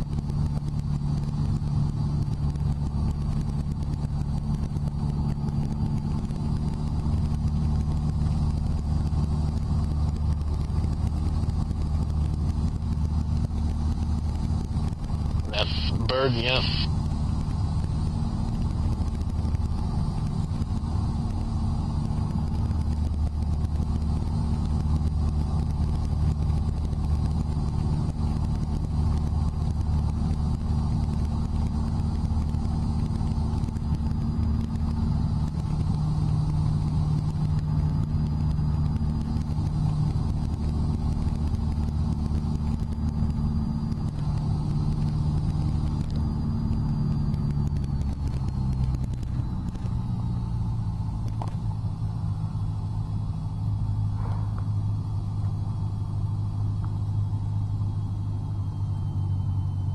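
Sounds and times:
faint high whine: 0:00.0 - 0:59.9
propeller plane engine drone: 0:00.0 - 0:59.9.

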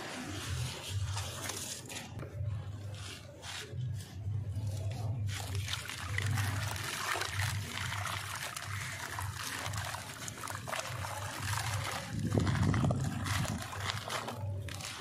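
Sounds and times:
grit trickling into water: 0:05.3 - 0:15.0.

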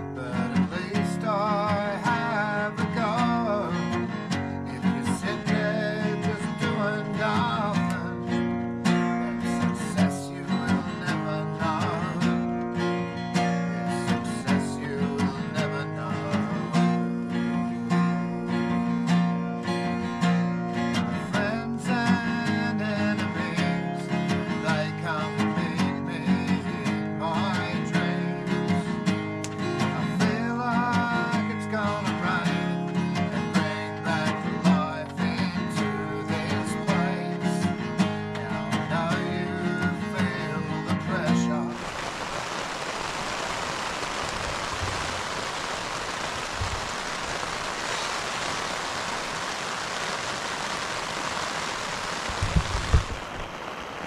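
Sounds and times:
person singing: 0:00.0 - 0:08.4, 0:09.0 - 0:19.6, 0:21.1 - 0:29.0, 0:29.6 - 0:42.1
strummed acoustic guitar: 0:00.0 - 0:41.8
steady rushing noise: 0:41.8 - 0:54.0.

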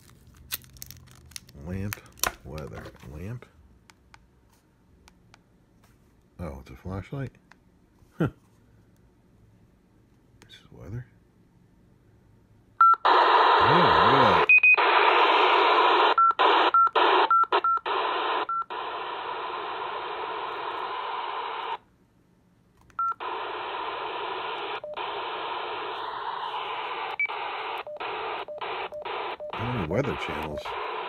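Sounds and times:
radio static hiss: 0:13.1 - 0:17.3, 0:17.9 - 0:21.8, 0:23.2 - 0:31.0.

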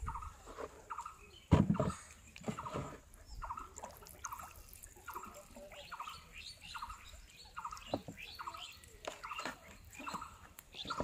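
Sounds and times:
small animal chirping: 0:03.3 - 0:11.0.

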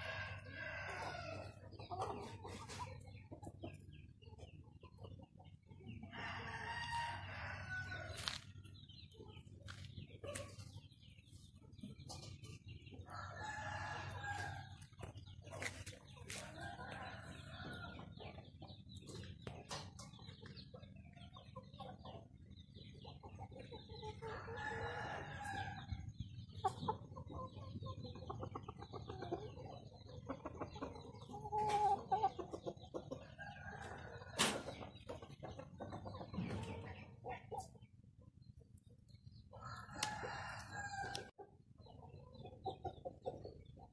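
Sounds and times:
hens clucking: 0:00.0 - 0:43.9
rooster crowing: 0:39.6 - 0:41.3.

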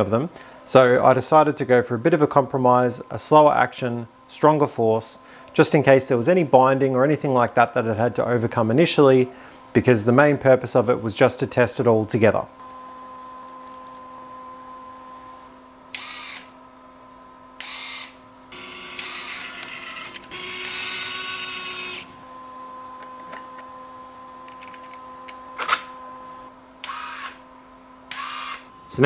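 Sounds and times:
faint steady hum: 0:00.0 - 0:29.0
electric motor whine: 0:12.6 - 0:16.6, 0:17.6 - 0:27.4, 0:28.1 - 0:29.0.

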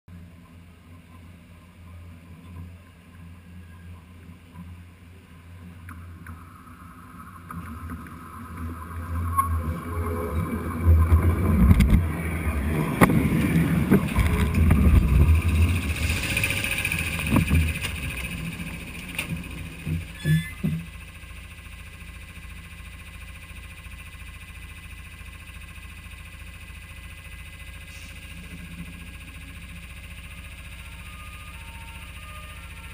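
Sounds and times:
high squeal: 0:06.4 - 0:20.9, 0:29.6 - 0:32.9
train rumble: 0:07.6 - 0:21.2.

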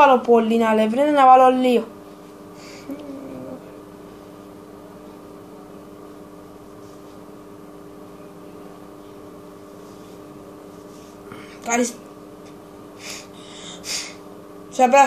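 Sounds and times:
machine hum with tones: 0:00.0 - 0:15.0.

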